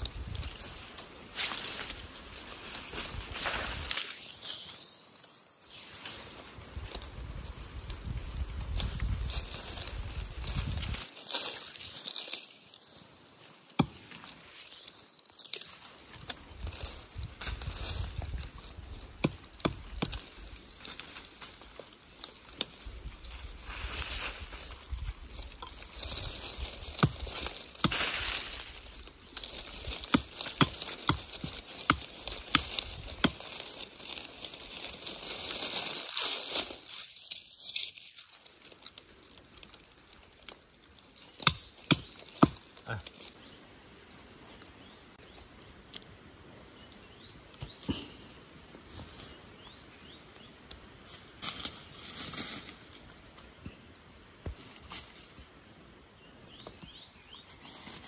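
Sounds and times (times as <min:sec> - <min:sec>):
hissing rustle: 0:00.0 - 0:19.1, 0:19.8 - 0:41.4.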